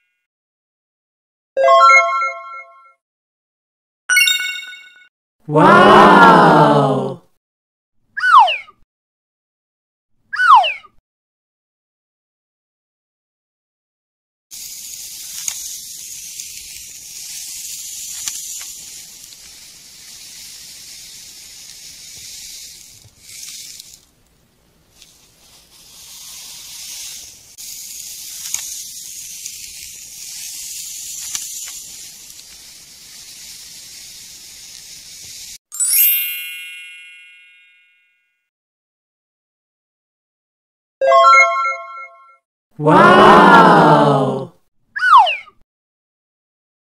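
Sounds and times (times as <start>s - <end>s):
bright chime: 4.1s - 5.1s, 35.7s - 38.3s
shovel scraping through sand: 25.0s - 32.6s.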